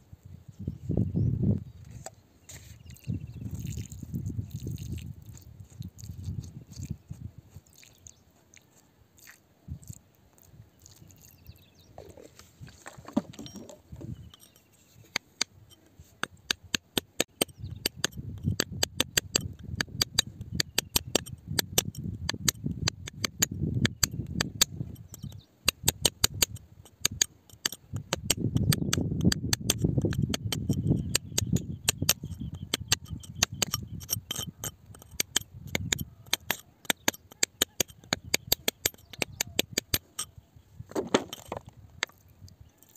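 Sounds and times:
wet squelching: 3.6 - 11.4
metal bar picking at rock: 13.1 - 42.2.

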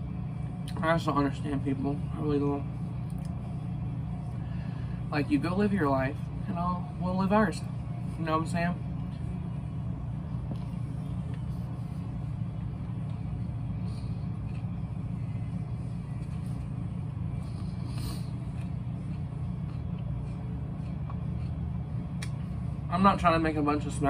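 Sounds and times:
low mechanical hum: 0.0 - 24.0
person chewing food: 10.4 - 22.6.

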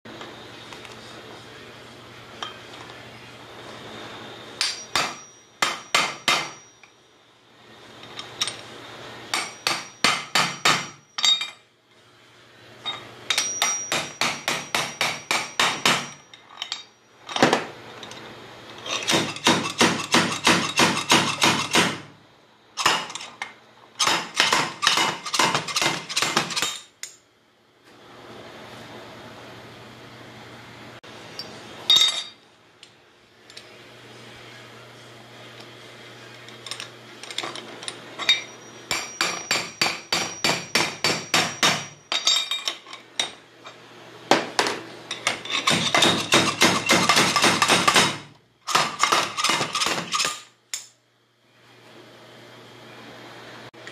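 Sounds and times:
hammer striking steel: 4.6 - 6.9, 9.3 - 11.6, 13.3 - 16.9, 19.0 - 22.1, 38.3 - 42.5
steel flywheel ringing: 12.9 - 16.9.

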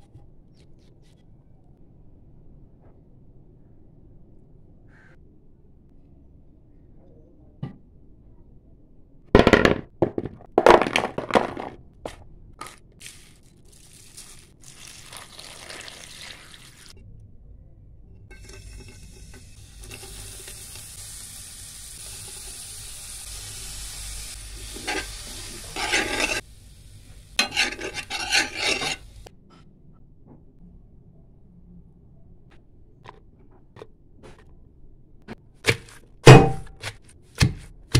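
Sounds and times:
spoon scraping pan: 18.3 - 20.3, 24.6 - 26.4, 27.4 - 29.3
garlic sizzling in pan: 18.3 - 29.2.

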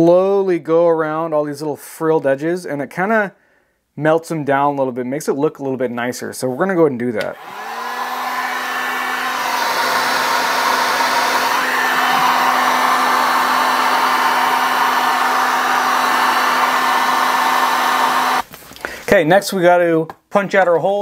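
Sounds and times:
heat gun motor hum: 7.3 - 18.4
rush of hot air: 7.4 - 18.4.

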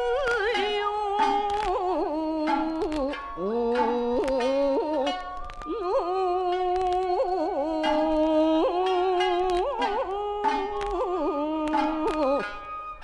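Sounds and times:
shamisen plucks: 0.0 - 13.0
woman singing folk song: 0.0 - 13.0.

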